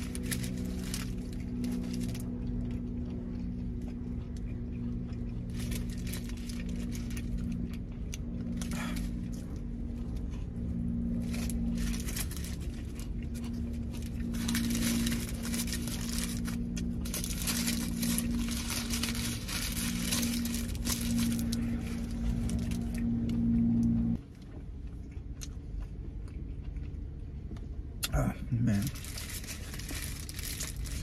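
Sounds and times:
paper wrapper crinkling: 0:00.0 - 0:02.4, 0:05.5 - 0:07.6, 0:11.1 - 0:23.0, 0:28.8 - 0:31.0
steady low hum: 0:00.0 - 0:31.0.

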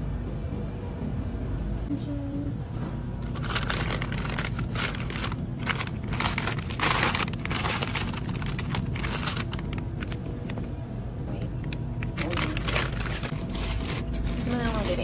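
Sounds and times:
steady low hum: 0:00.0 - 0:15.0
plastic mesh bags rustling: 0:03.2 - 0:10.2, 0:12.0 - 0:15.0.

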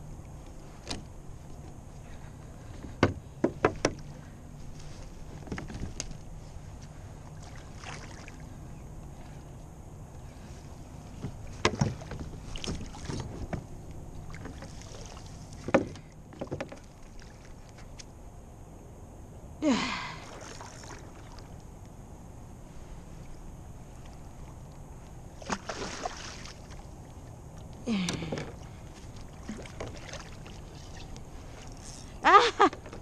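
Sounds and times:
splash with gulp: 0:07.4 - 0:08.4, 0:20.0 - 0:21.5, 0:25.4 - 0:26.9, 0:29.2 - 0:31.1.

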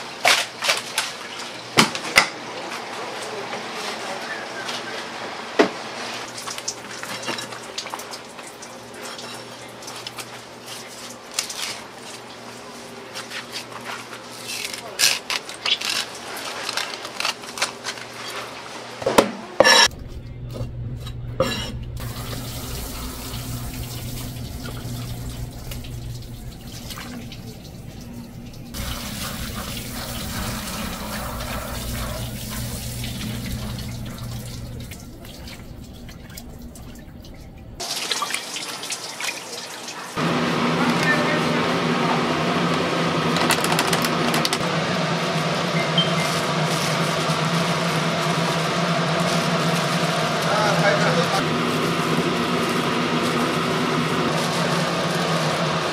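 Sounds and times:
water running from tap: 0:06.2 - 0:12.8, 0:22.0 - 0:40.3
dishes and utensils clattering: 0:07.0 - 0:08.1, 0:18.2 - 0:22.0
low hum: 0:19.9 - 0:37.8.

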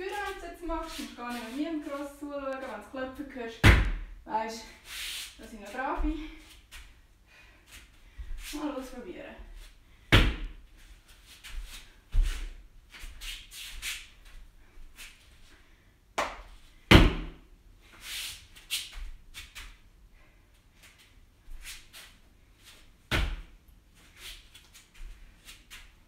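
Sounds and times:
soft rustling: 0:00.0 - 0:03.3
body thumping on exercise mat: 0:03.6 - 0:04.2, 0:10.1 - 0:10.6, 0:16.9 - 0:17.4, 0:23.1 - 0:23.5.

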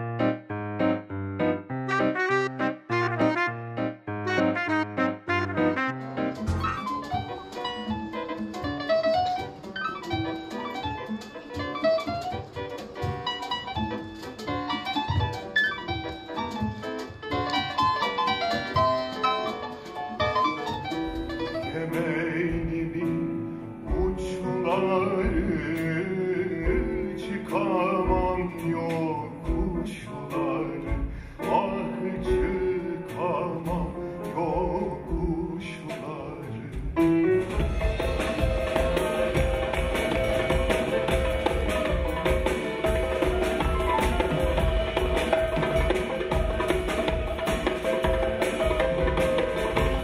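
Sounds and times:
double bass: 0:00.0 - 0:07.8, 0:21.2 - 0:45.0
drum kit: 0:00.0 - 0:50.0
piano notes: 0:00.0 - 0:50.0
darbuka: 0:04.3 - 0:21.8, 0:36.9 - 0:50.0
man singing: 0:21.5 - 0:38.1.

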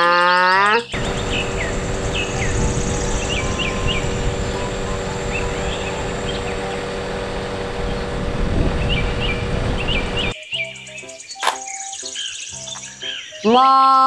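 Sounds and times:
small birds chirping: 0:00.5 - 0:14.0
aerial work platform hum: 0:00.9 - 0:10.4.

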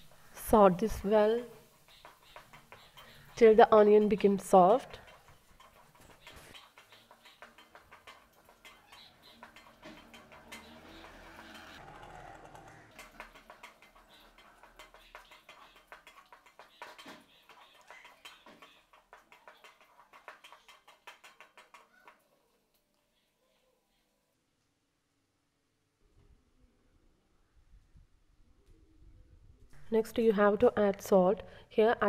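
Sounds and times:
wooden spatula scraping a pan: 0:00.0 - 0:22.2.

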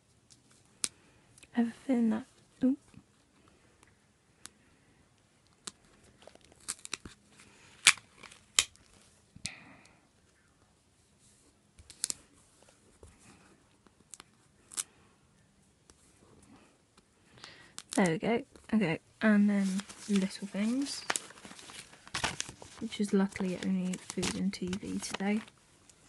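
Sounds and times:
sticker paper crinkling and snapping: 0:05.4 - 0:09.0, 0:19.6 - 0:25.6.

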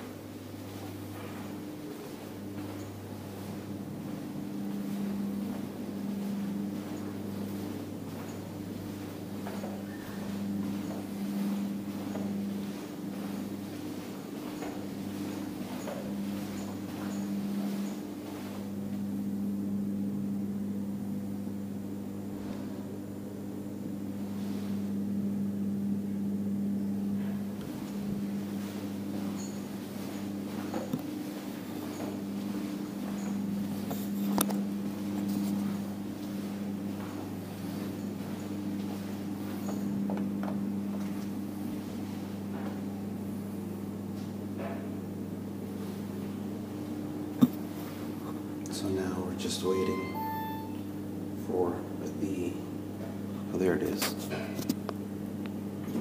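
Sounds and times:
faint footsteps: 0:00.0 - 0:19.0, 0:27.3 - 0:42.9
low machine hum: 0:00.0 - 0:56.0.

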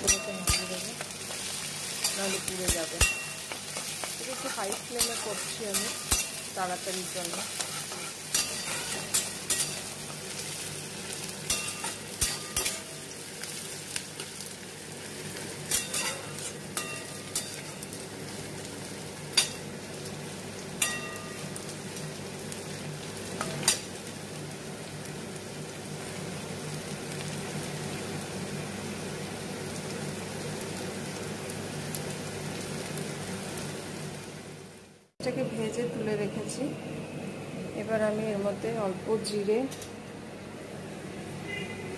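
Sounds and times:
metal spatula scraping a pan: 0:00.0 - 0:06.6, 0:07.2 - 0:10.1, 0:11.4 - 0:13.0, 0:15.7 - 0:17.8
onions sizzling in a frying pan: 0:00.0 - 0:41.9.

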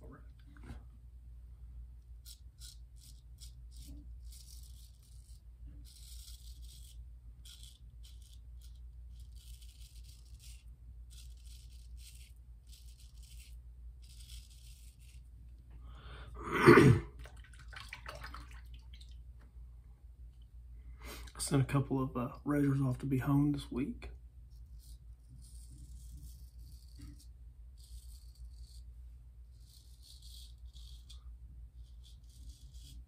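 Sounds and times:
low steady hum: 0:00.0 - 0:33.0
razor scraping stubble: 0:02.2 - 0:15.4, 0:24.5 - 0:33.0.

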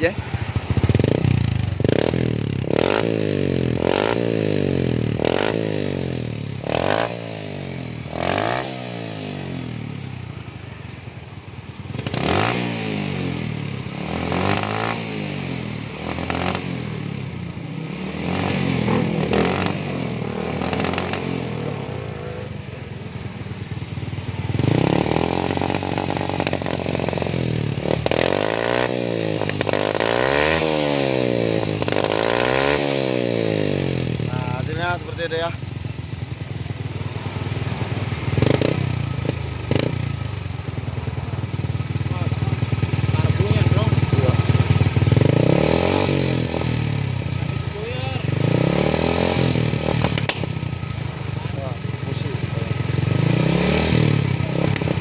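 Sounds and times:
motorcycle engine revving: 0:00.0 - 0:55.0.

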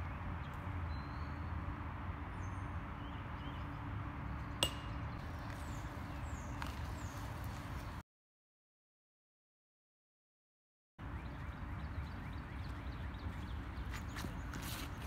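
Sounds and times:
outdoor background noise: 0:00.0 - 0:08.0, 0:11.0 - 0:15.0.

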